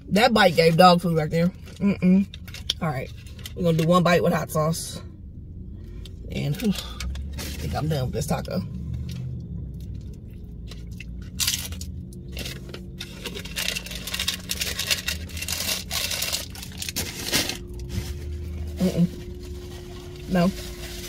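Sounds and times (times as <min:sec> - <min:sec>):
low steady hum: 0:00.0 - 0:21.0
paper wrappers rustling: 0:11.1 - 0:21.0.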